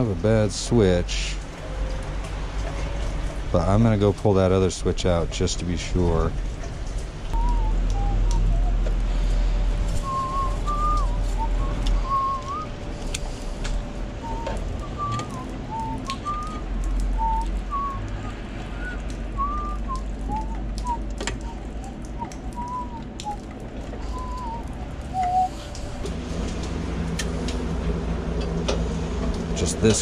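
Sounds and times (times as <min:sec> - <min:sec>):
person whistling a tune: 0:07.4 - 0:08.8, 0:10.0 - 0:12.7, 0:14.2 - 0:16.6, 0:17.2 - 0:23.4, 0:24.0 - 0:25.7.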